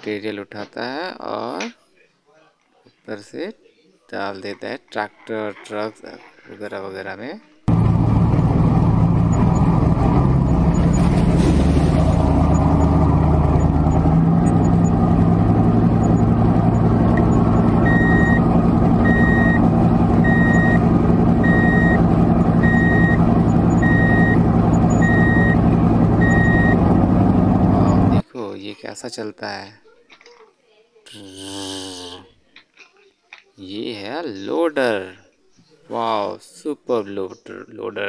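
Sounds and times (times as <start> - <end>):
heavy machinery engine running: 7.7 - 28.2
reversing alarm beeps: 17.8 - 18.4, 19.0 - 19.6, 20.2 - 20.8, 21.4 - 22.0, 22.6 - 23.2, 23.8 - 25.6, 26.2 - 26.8.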